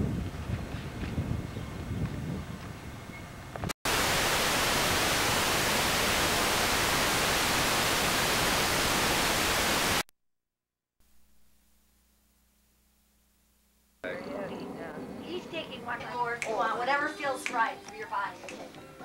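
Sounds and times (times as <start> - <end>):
outdoor camcorder sound: 3.1 - 10.1
videotape static hiss: 3.9 - 10.1.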